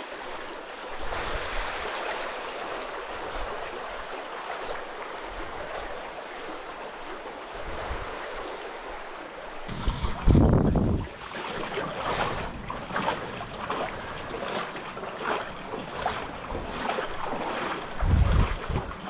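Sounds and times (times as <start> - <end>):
river water rushing: 0.0 - 19.0
low bumps: 9.7 - 11.3.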